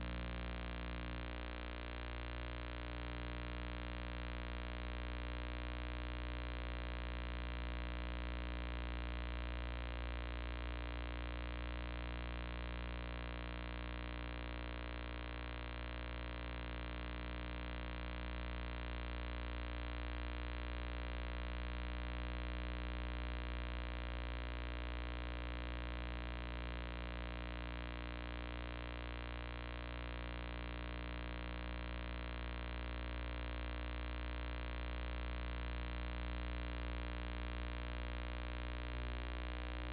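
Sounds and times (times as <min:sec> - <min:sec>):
electrical mains hum: 0:00.0 - 0:39.9.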